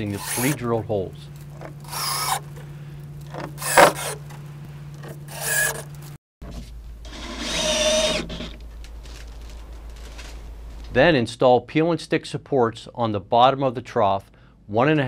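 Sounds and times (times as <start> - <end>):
cordless drill driving screws: 0.0 - 0.6, 1.5 - 2.6, 3.2 - 4.4, 5.0 - 5.9, 7.1 - 8.6.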